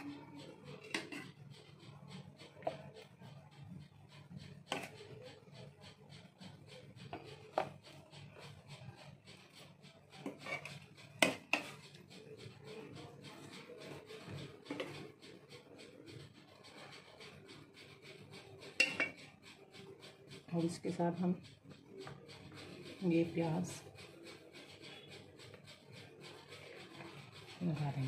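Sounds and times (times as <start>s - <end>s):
spoon scraping pot: 0.0s - 3.3s, 4.2s - 5.7s, 6.9s - 8.9s, 9.5s - 15.9s, 18.5s - 19.3s
spoon clinking against dish: 18.8s - 19.2s.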